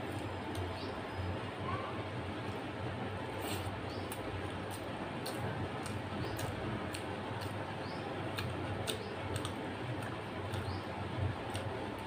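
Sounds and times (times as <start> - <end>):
steady low hum: 0.0 - 12.0
wet chewing clicks: 3.4 - 12.0.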